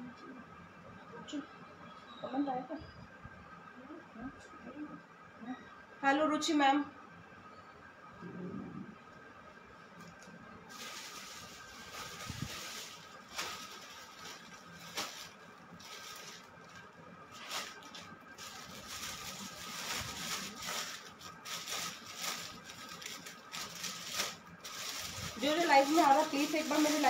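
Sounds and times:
plastic bags and clothes rustling: 10.0 - 27.0.

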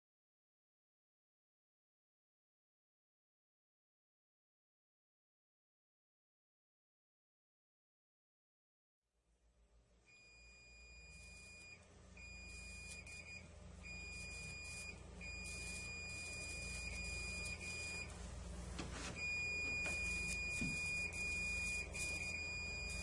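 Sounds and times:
faint low hum: 9.5 - 23.0
electrocautery high tone: 10.8 - 18.2, 19.2 - 23.0.

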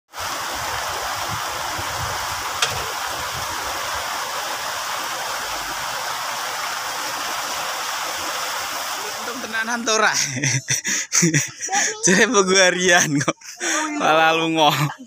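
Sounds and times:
heavy rain falling: 0.1 - 10.2.

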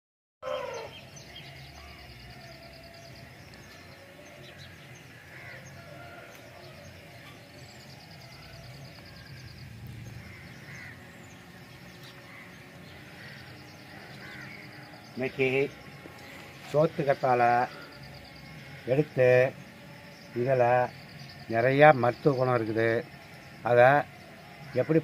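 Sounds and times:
crows cawing: 0.4 - 7.4, 8.4 - 19.2, 24.6 - 25.0
birds calling: 0.4 - 25.0.

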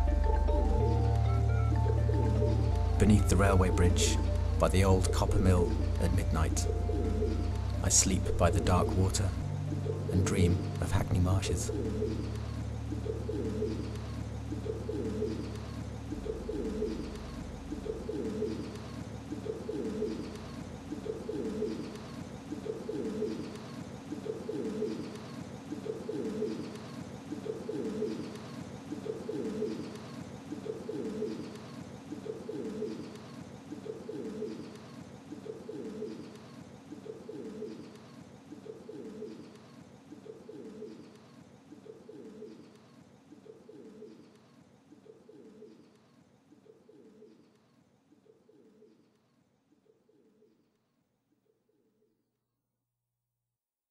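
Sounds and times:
low steady drone: 0.0 - 25.1
pigeons cooing: 0.0 - 47.6.

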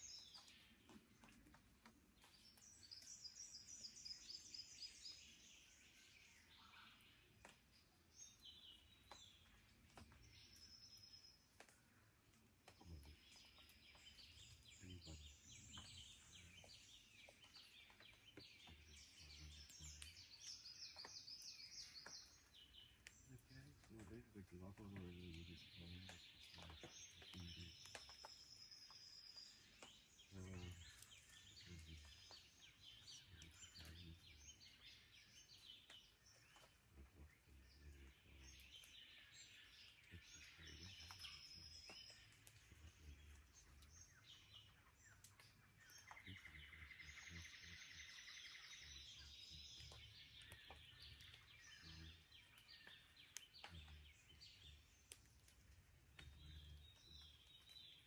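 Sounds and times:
birds calling and trilling: 0.0 - 58.0.

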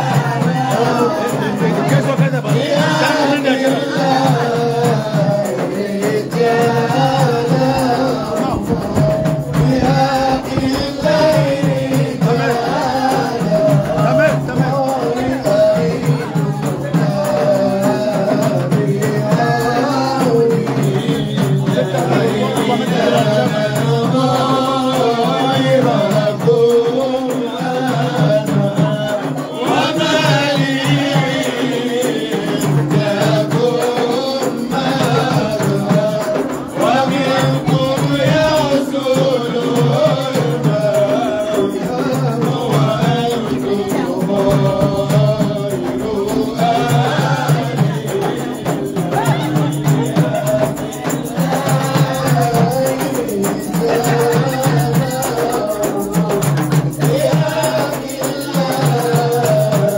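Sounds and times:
group singing: 0.0 - 59.9
hand percussion beat: 0.0 - 59.9
shaking rattle: 28.9 - 59.9.

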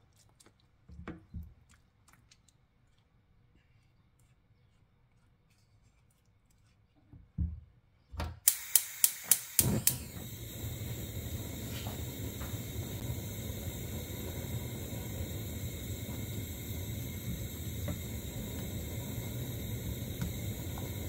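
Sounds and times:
gas flame hissing: 8.4 - 21.0
spark igniter clicking: 8.4 - 21.0.

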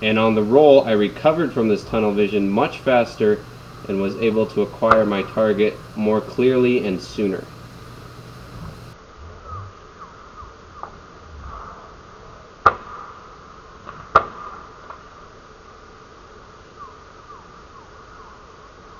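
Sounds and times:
insects buzzing: 0.0 - 12.5.

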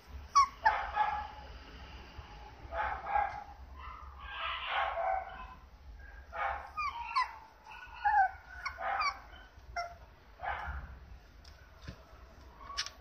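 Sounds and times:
puppy yipping and whimpering: 0.1 - 1.0, 6.4 - 10.1.

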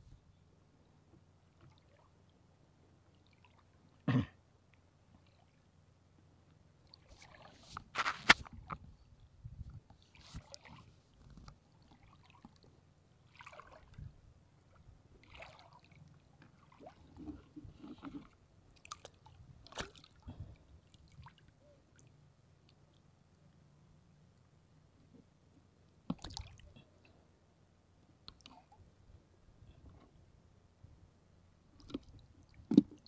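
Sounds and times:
shallow seawater splashing: 13.3 - 14.0, 15.2 - 15.9.

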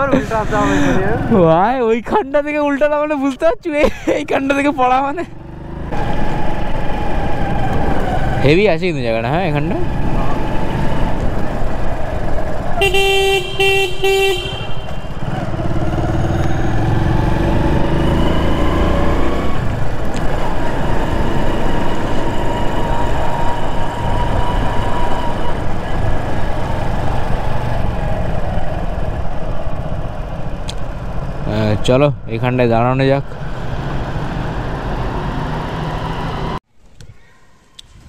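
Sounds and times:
motorcycle running: 0.0 - 2.0, 4.4 - 36.6
road and wind noise: 0.0 - 38.0
horn short toots: 12.8 - 15.2.

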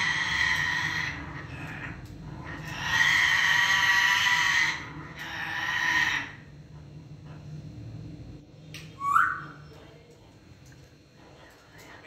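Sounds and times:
parrot screeching: 0.0 - 6.5, 9.0 - 9.6.

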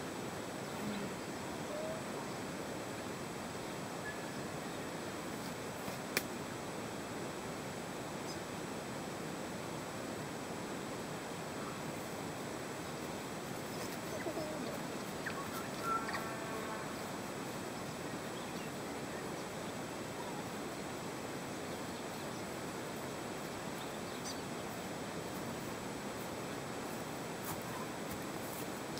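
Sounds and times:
outdoor background noise: 0.0 - 28.9
bird calls and chirps: 13.7 - 17.1.

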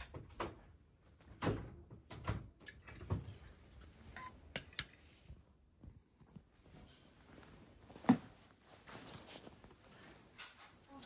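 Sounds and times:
fabric rustling: 5.0 - 11.0.

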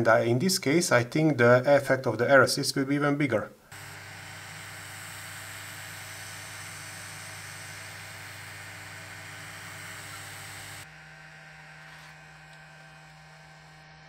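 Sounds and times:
faint steady hum: 3.4 - 10.9
air pump hissing and buzzing: 3.7 - 10.9.

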